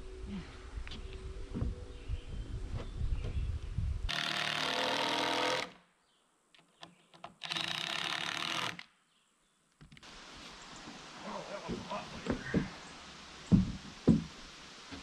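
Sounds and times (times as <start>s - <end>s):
power tool rattling: 4.1s - 5.7s, 7.4s - 8.8s.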